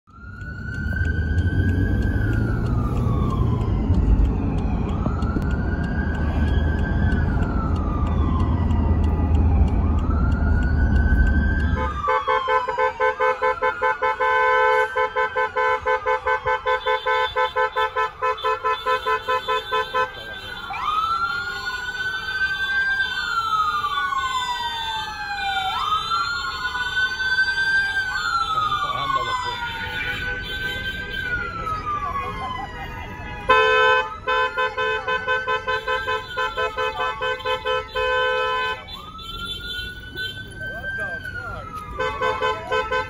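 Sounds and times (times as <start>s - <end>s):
moving car rumble: 0.0s - 12.7s, 15.7s - 43.0s
police siren wailing: 0.1s - 43.0s.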